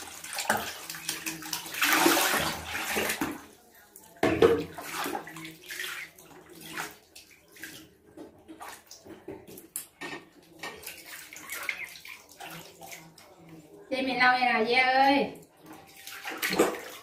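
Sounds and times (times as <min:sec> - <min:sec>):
water splashing in a plastic basin: 0:00.0 - 0:13.7, 0:15.2 - 0:17.0.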